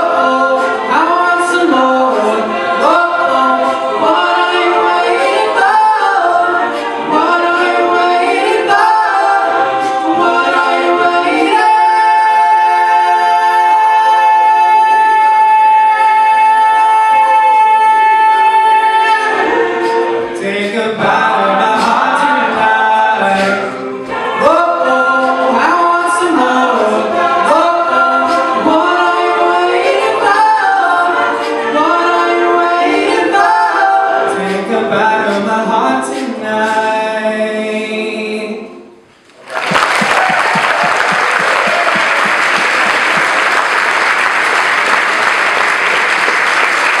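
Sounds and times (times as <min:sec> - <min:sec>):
male a cappella group singing: 0:00.0 - 0:39.0
audience applause: 0:39.4 - 0:47.0.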